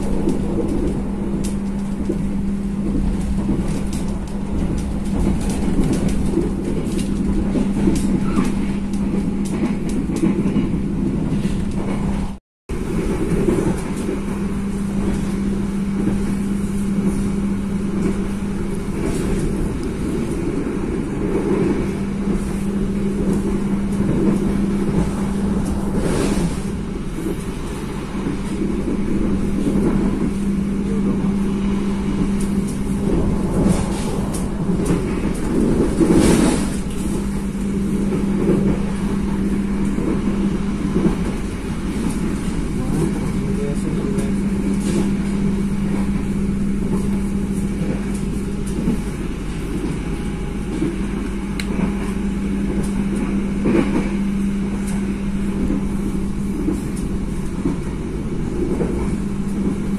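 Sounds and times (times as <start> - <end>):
vehicle running hum and rumble: 0.0 - 59.9.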